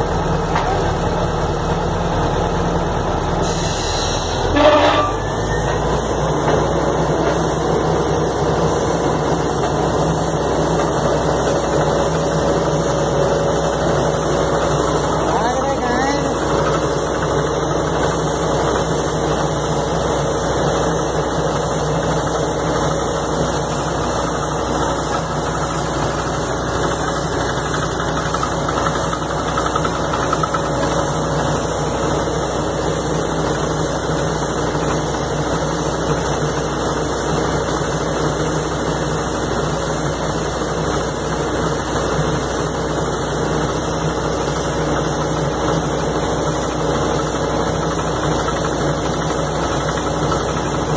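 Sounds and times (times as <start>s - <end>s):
diesel engine drone: 0.0s - 50.9s.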